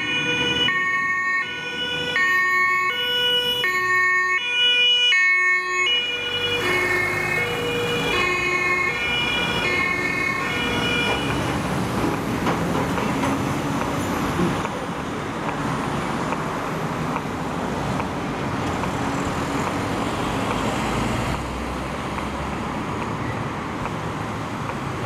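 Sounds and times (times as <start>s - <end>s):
two-tone emergency siren: 0.0s - 11.7s
truck engine and tyre noise: 0.0s - 25.0s.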